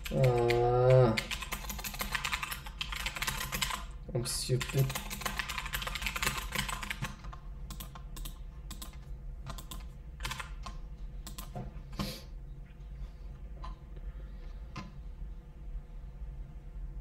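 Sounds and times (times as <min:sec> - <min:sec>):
keyboard typing: 0:00.0 - 0:03.9, 0:04.6 - 0:11.6.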